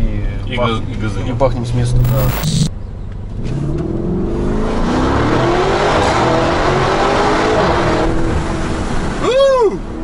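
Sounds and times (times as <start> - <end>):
car engine accelerating hard: 3.3 - 9.2.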